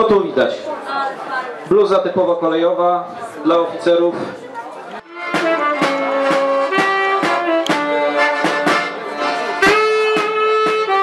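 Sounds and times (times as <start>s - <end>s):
accordion melody: 5.0s - 11.0s
saxophone melody: 5.0s - 11.0s
hand drum beat: 5.2s - 9.0s.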